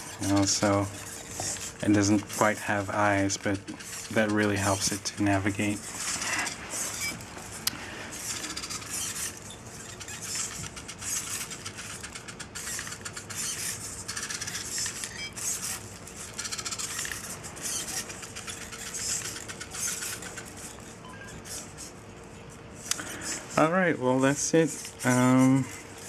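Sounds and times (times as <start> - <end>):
fast gear ticking: 0.0 - 7.1, 8.1 - 20.8
servo motors whirring: 0.0 - 22.0, 22.8 - 26.0.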